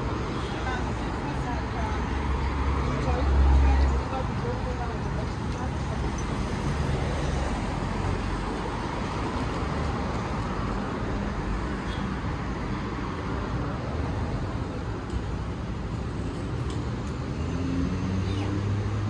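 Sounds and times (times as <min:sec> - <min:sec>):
city road traffic: 0:00.0 - 0:19.0.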